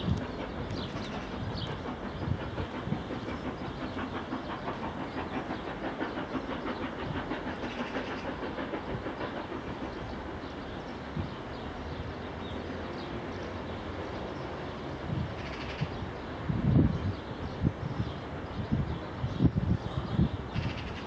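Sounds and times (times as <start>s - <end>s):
train wheels clattering on rails: 0.0s - 21.0s.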